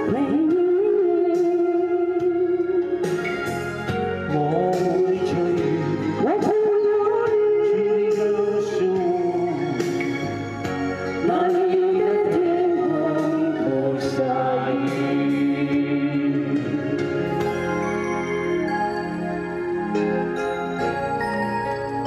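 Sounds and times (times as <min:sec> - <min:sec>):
man and woman singing duet: 0:00.0 - 0:03.0, 0:04.3 - 0:09.8, 0:11.2 - 0:17.3
backing music: 0:00.0 - 0:22.0.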